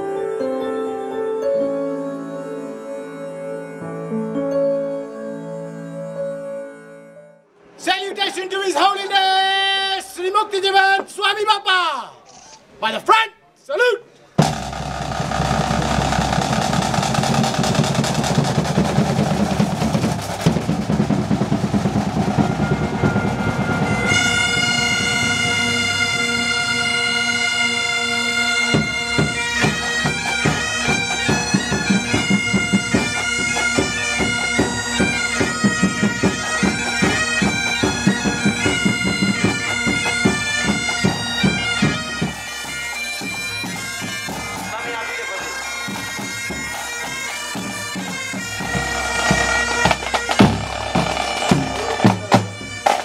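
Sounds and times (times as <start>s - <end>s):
bagpipe drones: 0.0s - 7.8s, 20.2s - 53.0s
bagpipe chanters playing a tune: 1.0s - 7.5s, 21.4s - 53.0s
drumming: 14.4s - 27.2s, 28.5s - 53.0s.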